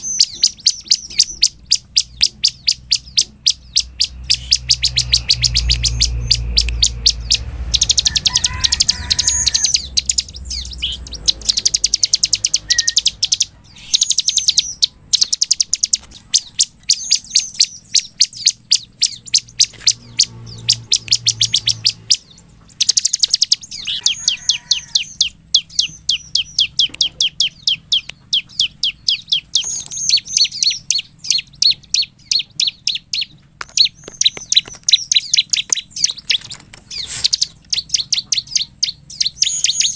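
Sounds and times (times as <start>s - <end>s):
bird singing sharp high chips: 0.0s - 39.9s.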